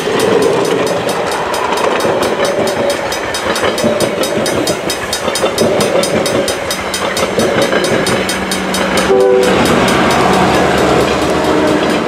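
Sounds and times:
crossing bell ringing: 0.0s - 12.0s
train wheels clacking over rail joints: 0.0s - 12.0s
train horn chord: 8.8s - 12.0s.

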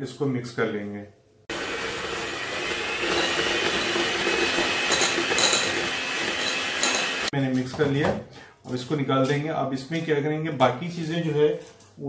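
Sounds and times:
electric hand mixer running: 1.5s - 7.3s
beaters clinking against glass: 4.8s - 7.2s.

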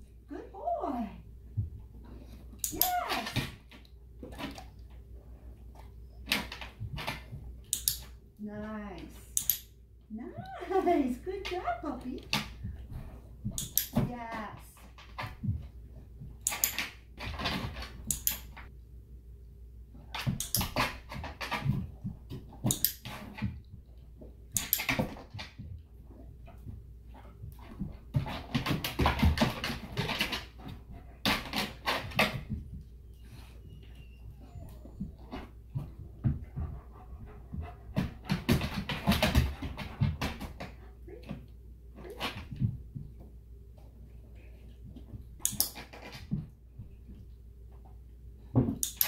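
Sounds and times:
dog panting: 33.2s - 41.0s
paws knocking on plastic step: 34.5s - 41.4s.

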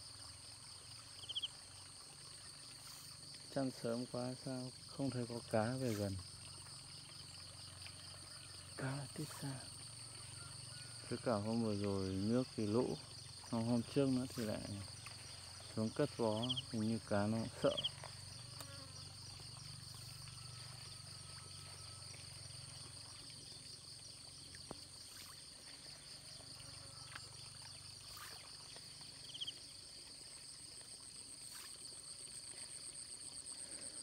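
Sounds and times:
insect trills: 0.0s - 34.0s
faint ticks: 14.3s - 16.8s, 17.6s - 25.3s, 26.6s - 29.6s.

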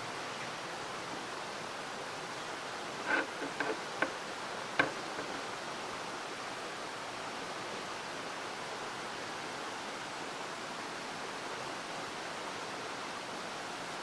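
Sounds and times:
steady hiss: 0.0s - 14.0s
metal beam clicks and knocks: 3.1s - 4.2s, 4.8s - 5.4s.

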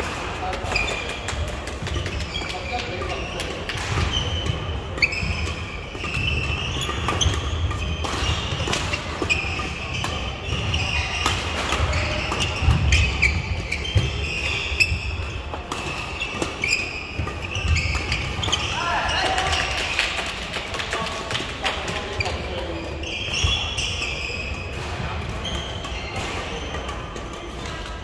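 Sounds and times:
racket hitting shuttlecock: 0.0s - 20.2s
shoe squeaks on court floor: 0.7s - 19.8s, 21.9s - 27.8s.

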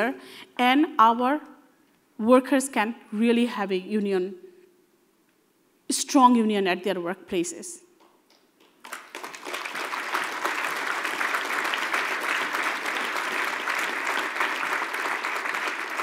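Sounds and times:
audience applause: 8.8s - 16.0s.

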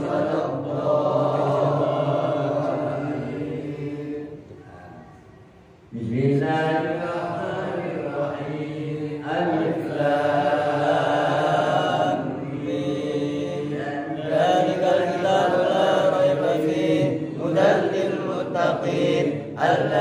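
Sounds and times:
man chanting over a microphone: 5.9s - 20.0s.

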